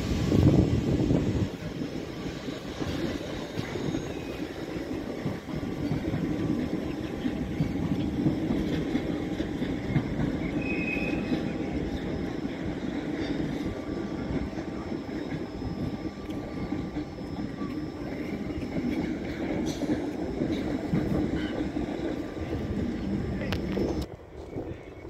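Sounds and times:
locomotive rolling on rails: 0.0 - 25.0
wheel squeal: 3.4 - 12.5.

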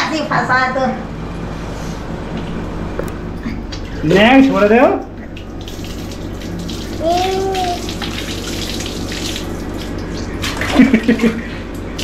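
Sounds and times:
water splashing onto floor: 5.4 - 12.0.

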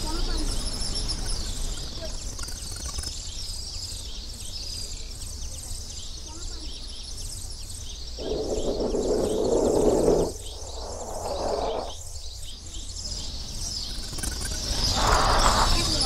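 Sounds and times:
small birds chirping: 0.0 - 16.0
muffled rushing noise: 8.2 - 12.0.

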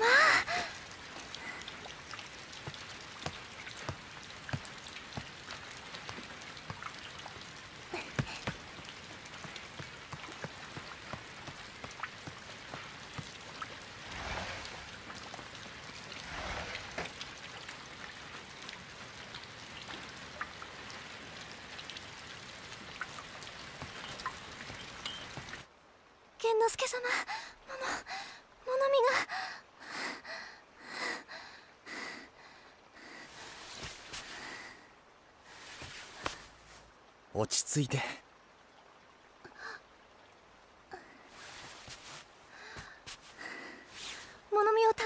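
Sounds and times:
drips and patter: 0.0 - 25.7, 35.5 - 45.0
steady rain falling: 0.0 - 45.0.

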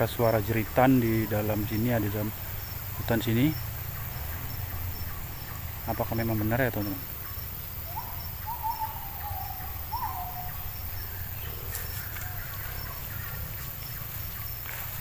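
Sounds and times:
insects chirping: 0.0 - 15.0
bird whistling: 7.8 - 13.5.

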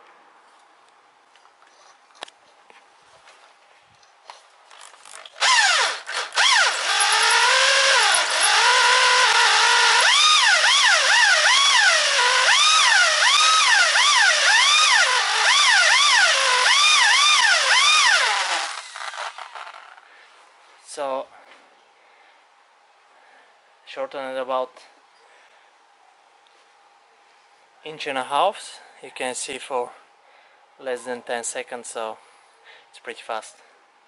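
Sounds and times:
electric drill hole saw cutting metal: 5.4 - 20.0.

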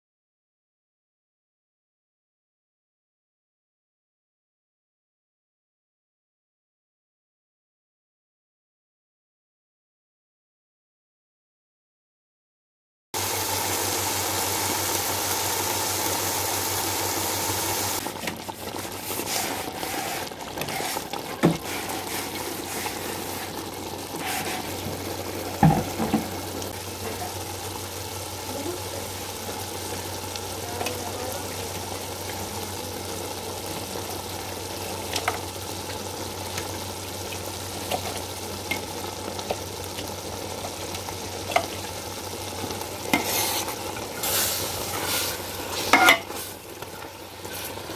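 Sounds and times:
food sizzling in a pot: 13.2 - 47.9
gravy bubbling at a boil: 13.2 - 47.9.

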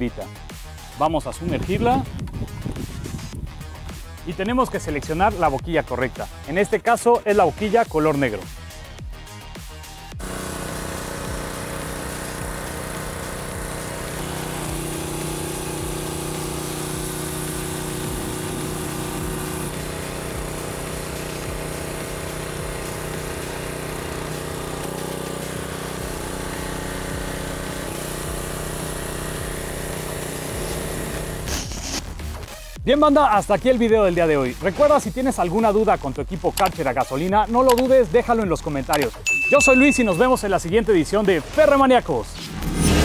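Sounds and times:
pressure washer engine running: 10.1 - 32.0, 36.6 - 41.3
water spray hissing on metal: 10.2 - 32.0.

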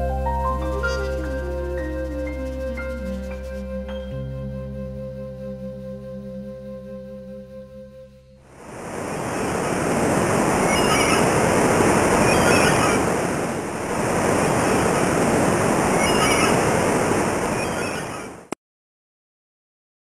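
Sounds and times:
waves breaking: 8.5 - 18.5.

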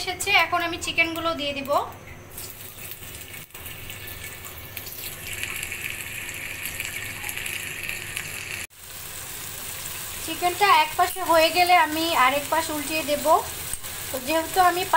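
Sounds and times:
chicken sizzling in hot oil: 2.3 - 14.9.

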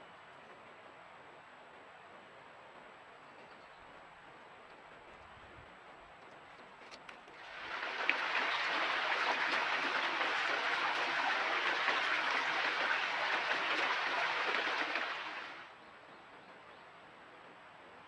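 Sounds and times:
creek water burbling: 7.3 - 15.7.

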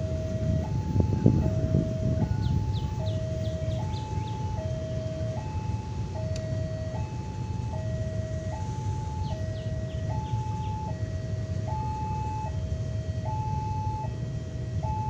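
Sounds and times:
low rumble: 0.0 - 15.0
two-tone crossing warning alarm: 0.0 - 15.0.

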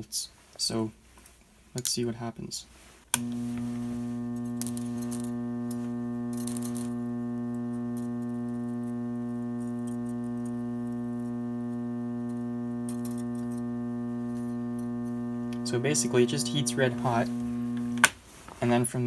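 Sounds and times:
faint crackles: 2.8 - 18.8
transformer humming: 3.2 - 18.1.

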